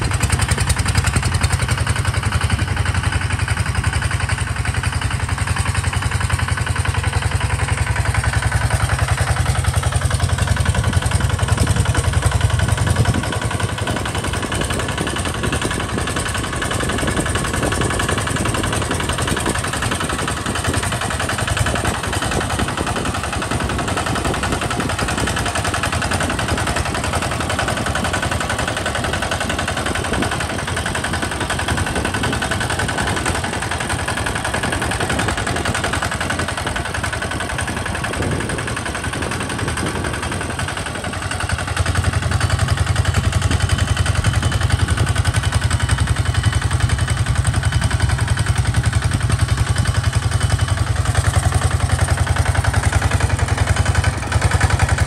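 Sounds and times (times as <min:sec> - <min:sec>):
diesel tractor engine running: 0:00.0 - 0:55.0.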